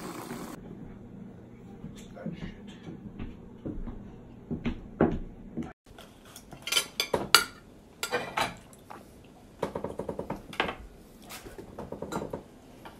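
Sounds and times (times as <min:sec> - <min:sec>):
dishes and cutlery clinking: 0:05.9 - 0:08.6.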